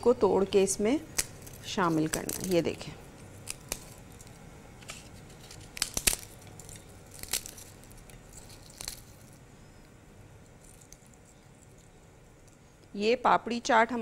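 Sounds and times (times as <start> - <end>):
crisp wafers snapping: 1.1 - 2.6, 3.2 - 9.4, 10.6 - 12.6.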